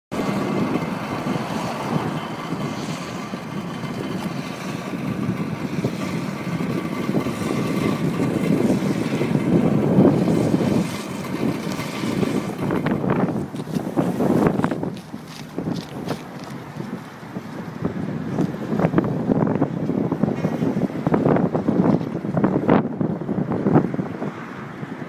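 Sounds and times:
water gushing from hose: 0:00.2 - 0:16.9.

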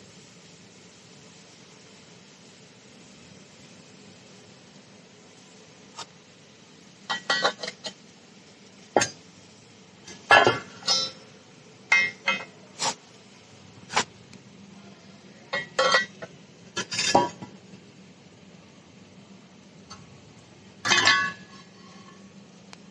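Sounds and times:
metal pieces knocking and clinking: 0:20.8 - 0:21.5.

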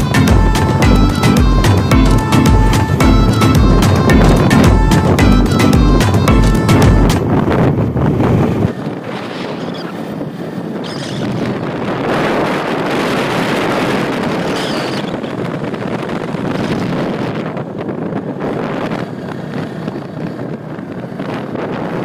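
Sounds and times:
motorcycle engine running: 0:00.0 - 0:08.9
wind rushing over microphone: 0:00.0 - 0:22.0.

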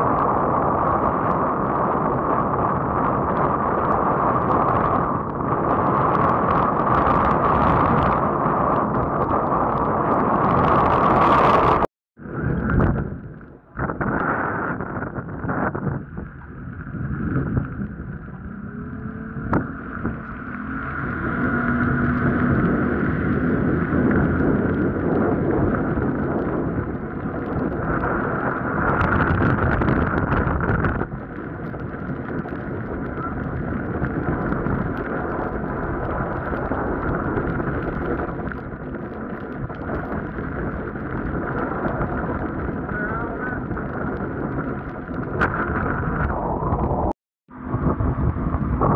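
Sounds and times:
motorboat engine running: 0:00.0 - 0:48.9
water noise: 0:00.0 - 0:48.9
wind rumbling on microphone: 0:00.0 - 0:48.9
outboard motor running: 0:16.3 - 0:26.8, 0:47.5 - 0:48.9.

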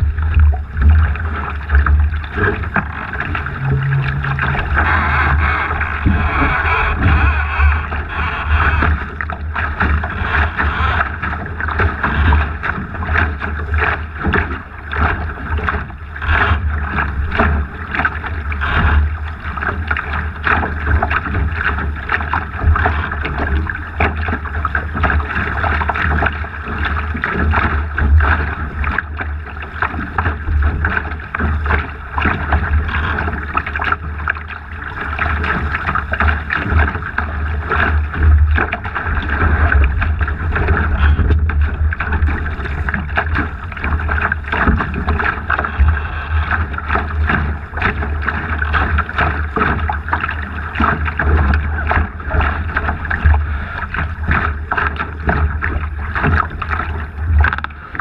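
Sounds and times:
wind buffeting microphone: 0:00.0 - 0:14.7
water rushing along boat hull: 0:00.0 - 0:58.0.

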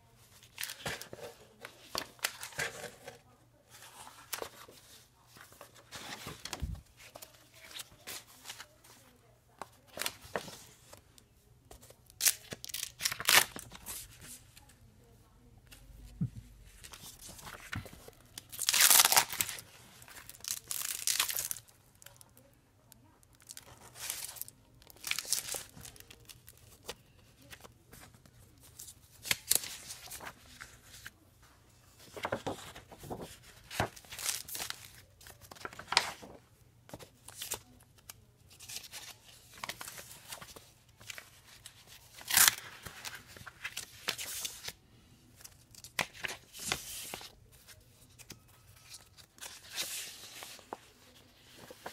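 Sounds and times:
plastic folders crinkling: 0:17.2 - 0:21.7.

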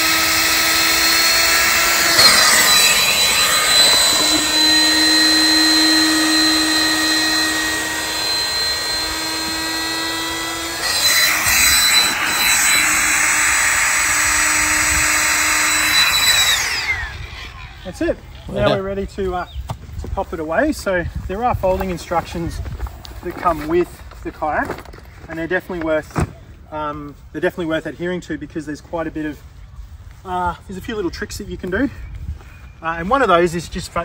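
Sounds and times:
electric pump motor hum: 0:00.0 - 0:18.0.

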